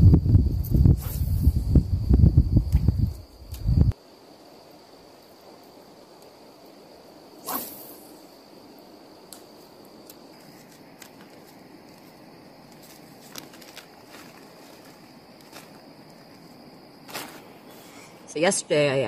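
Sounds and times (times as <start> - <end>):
plastic bag crinkling: 12.8 - 16.4, 17.0 - 17.6.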